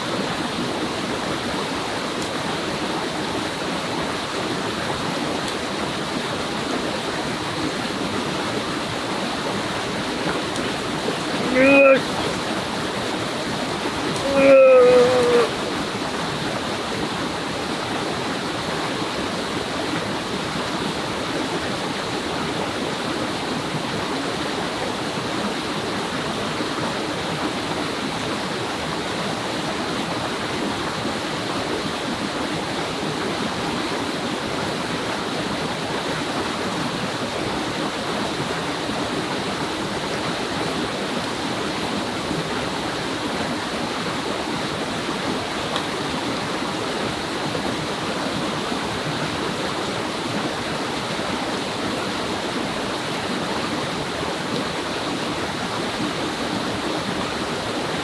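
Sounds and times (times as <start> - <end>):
stream running over rocks: 0.0 - 58.0.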